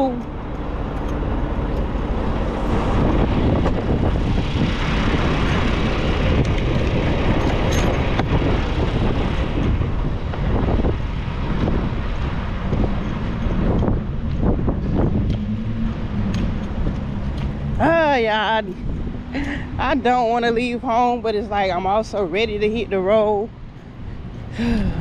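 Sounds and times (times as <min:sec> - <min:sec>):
diesel truck engine idling: 0:00.0 - 0:06.4
wind on microphone: 0:00.0 - 0:25.0.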